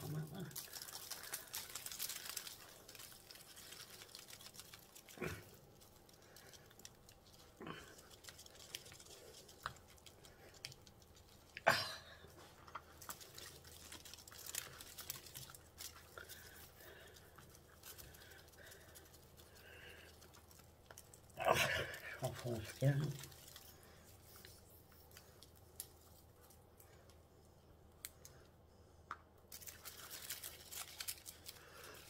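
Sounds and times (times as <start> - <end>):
hands rustling potting soil: 12.2 - 26.8.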